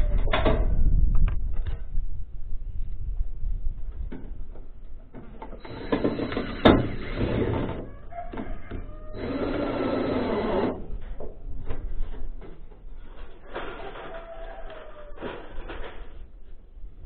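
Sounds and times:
cordless drill whining: 5.6 - 7.8, 8.7 - 10.9.

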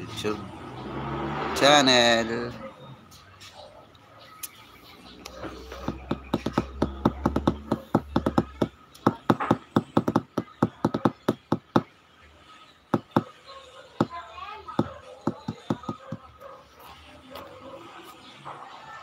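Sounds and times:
sharp taps and clicks by hand: 5.2 - 11.9, 13.0 - 13.3, 14.8 - 16.3.

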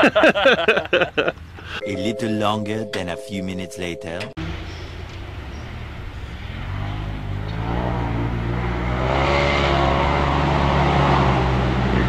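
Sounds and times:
utility vehicle engine accelerating: 4.4 - 12.0.

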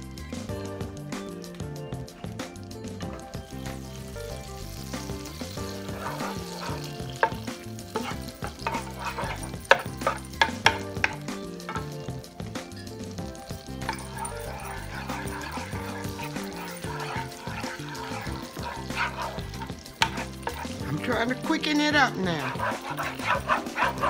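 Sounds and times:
background music: 0.0 - 24.0
butter sizzling in a pan: 0.0 - 24.0
utensil knocking against pan: 5.0 - 12.1, 13.8 - 21.0, 22.4 - 24.0.

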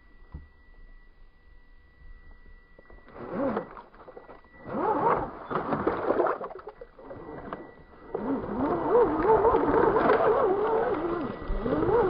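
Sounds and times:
electric motor whining: 2.7 - 12.0.

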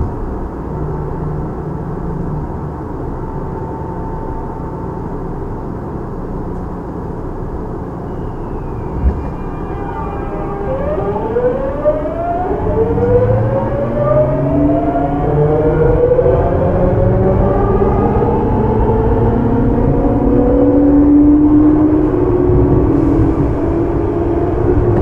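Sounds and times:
train running rumble: 0.0 - 25.0
inverter whine rising in pitch: 7.9 - 25.0.

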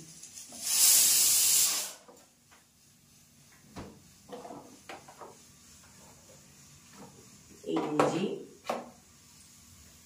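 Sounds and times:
loud hiss: 0.0 - 2.1.

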